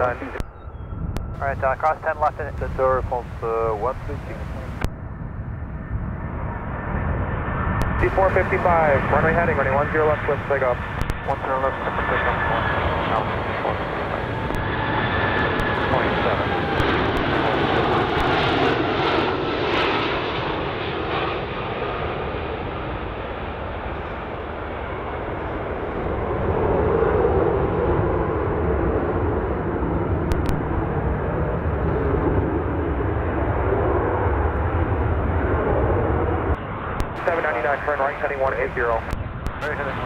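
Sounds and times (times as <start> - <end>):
jet airliner engine rush: 0.0 - 40.0.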